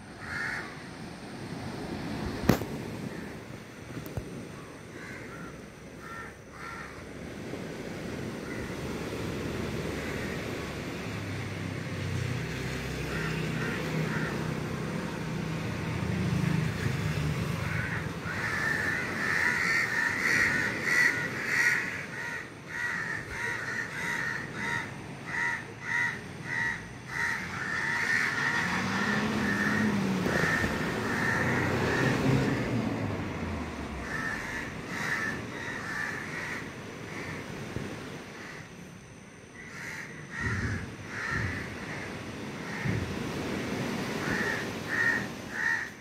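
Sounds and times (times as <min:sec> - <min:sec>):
crows cawing: 0:00.2 - 0:00.9, 0:04.6 - 0:07.1, 0:08.4 - 0:09.1, 0:09.8 - 0:10.5, 0:13.0 - 0:15.2, 0:17.5 - 0:32.7, 0:34.0 - 0:37.6, 0:38.3 - 0:38.8, 0:39.5 - 0:43.2, 0:44.1 - 0:46.0
vehicle engine passing: 0:08.8 - 0:19.4, 0:27.1 - 0:35.3.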